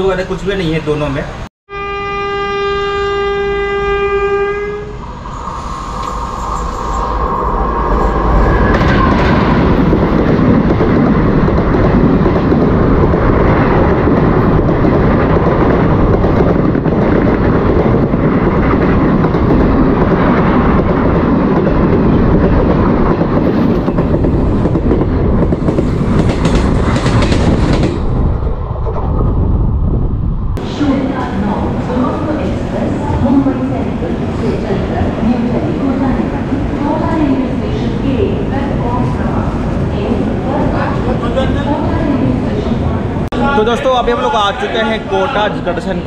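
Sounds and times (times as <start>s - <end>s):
passing train roar and clatter: 0.0s - 46.0s
train horn: 1.7s - 5.0s.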